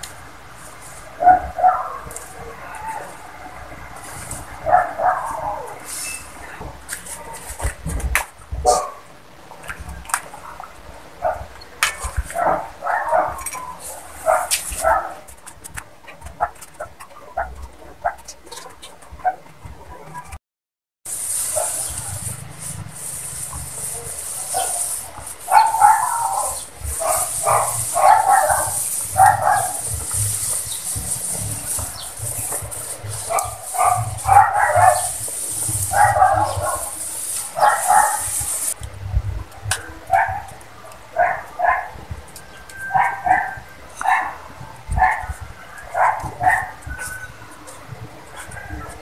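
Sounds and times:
steady high hiss: 0.0 - 15.8, 21.1 - 49.0
dog barking: 1.2 - 3.2, 4.6 - 5.9, 8.6 - 9.1, 11.2 - 15.2, 21.5 - 22.0, 23.9 - 30.2, 33.1 - 38.7, 39.8 - 42.0, 42.8 - 47.4.

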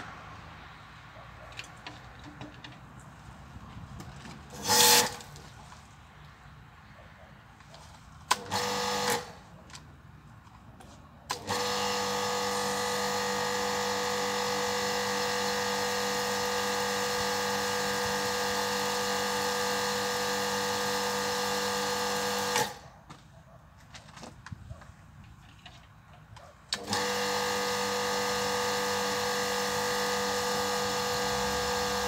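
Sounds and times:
pressure washer hum: 4.5 - 5.6, 11.3 - 22.8, 26.7 - 32.0.

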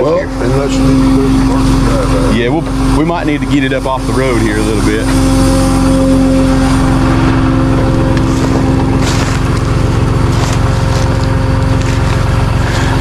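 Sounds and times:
truck engine running: 0.0 - 13.0
crunching rustles in dry leaves: 6.5 - 13.0.

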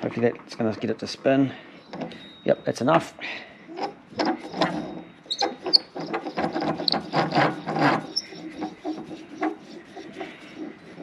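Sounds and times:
metal clicks scrapes and knocks: 3.8 - 11.0.

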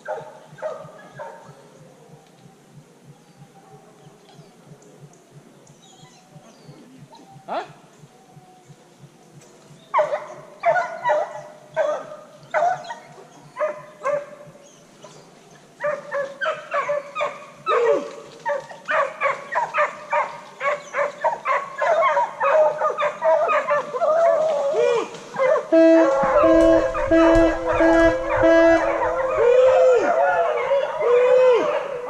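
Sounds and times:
hounds barking: 0.0 - 2.1, 9.9 - 32.0.

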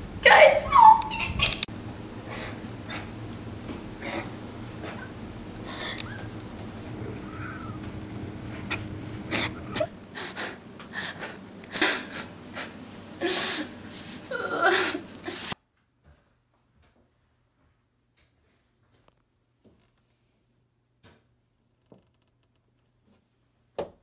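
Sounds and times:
person crying out: 0.0 - 1.6
high-pitched electronic whine: 0.0 - 15.6
static crackles: 0.0 - 15.6.

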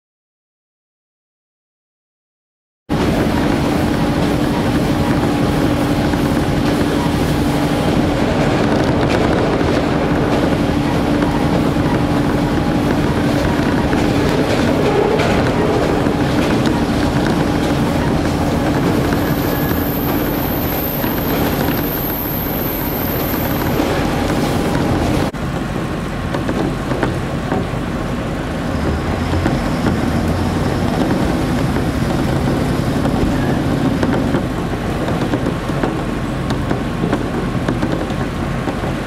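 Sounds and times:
thin high whine: 2.9 - 25.3
diesel engine hum: 2.9 - 39.0
train wheels on rail: 2.9 - 39.0.

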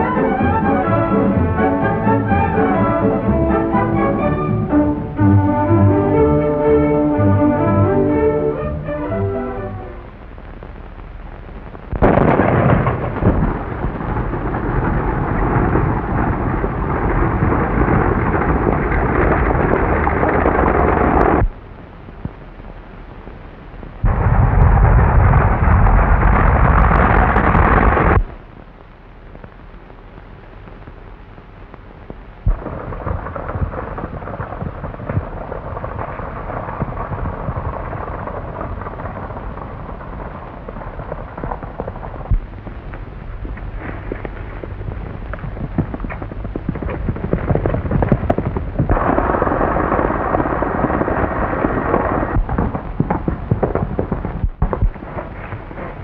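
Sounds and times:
stagecoach rumbling: 0.0 - 10.2
horses galloping: 12.0 - 21.6, 32.4 - 56.0.

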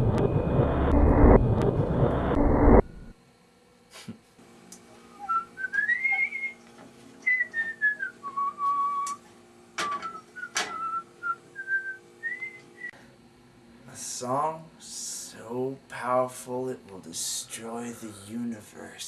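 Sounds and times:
faint steady hum: 0.0 - 19.0
person whistling a slow tune: 5.1 - 6.6, 7.2 - 9.2, 9.8 - 13.0.

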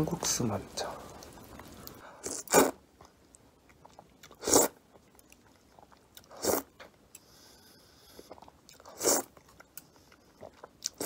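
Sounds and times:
faint chewing: 1.0 - 11.0
slurping noodles: 1.2 - 2.8, 4.3 - 4.8, 5.8 - 6.7, 7.4 - 9.4.

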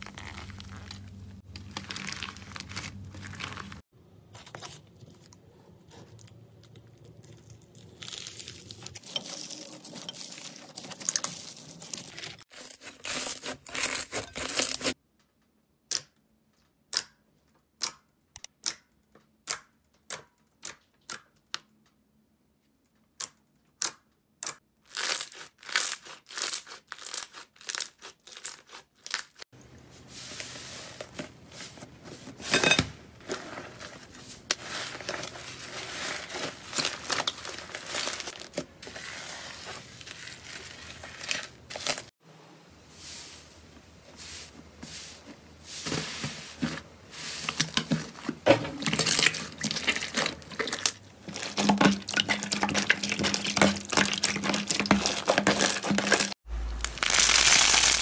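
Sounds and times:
slime crackling and popping: 0.0 - 3.8, 48.9 - 58.0.

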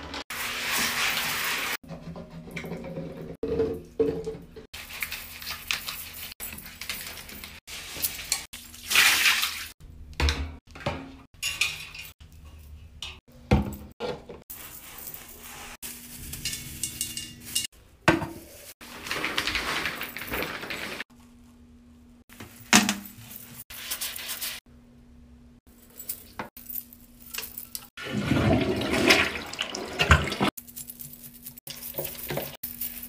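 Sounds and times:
bottle on wire shower caddy: 30.6 - 33.0.

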